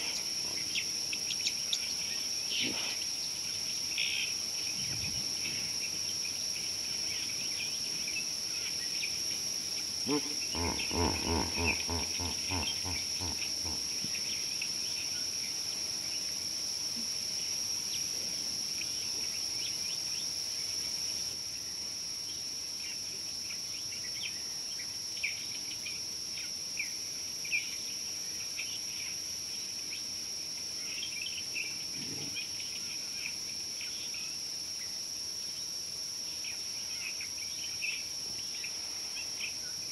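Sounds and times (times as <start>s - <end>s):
insects droning: 0.0s - 39.9s
low rapidly pulsing call: 10.1s - 13.8s.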